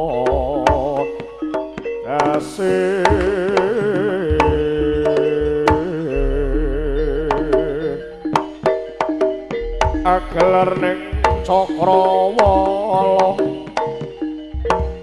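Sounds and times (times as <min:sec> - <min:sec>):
wavering melodic line: 0:00.0 - 0:15.0
deep low held notes: 0:04.3 - 0:08.2, 0:09.6 - 0:11.8
rapid hand drum strokes: 0:08.4 - 0:11.6.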